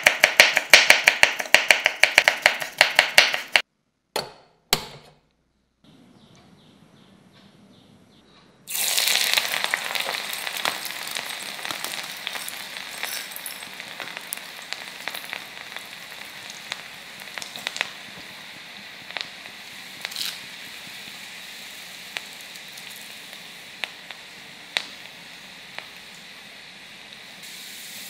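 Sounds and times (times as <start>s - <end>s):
spices sizzling in hot fat: 0.0s - 3.7s, 8.7s - 28.0s
small crackling pops: 9.0s - 27.4s.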